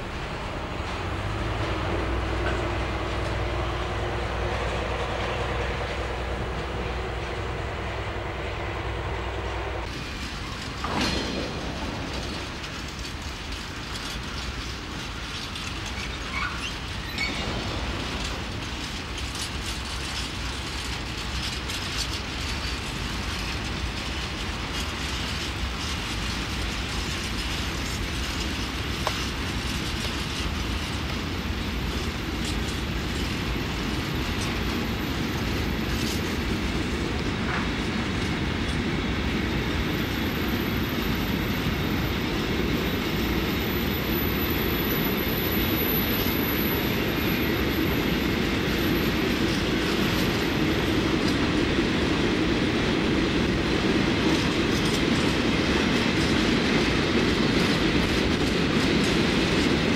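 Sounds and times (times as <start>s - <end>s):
wheels clicking over rail joints: 0.0s - 7.9s, 9.8s - 59.9s
freight train rumbling: 0.0s - 59.9s
wheel squeals: 12.2s - 31.1s.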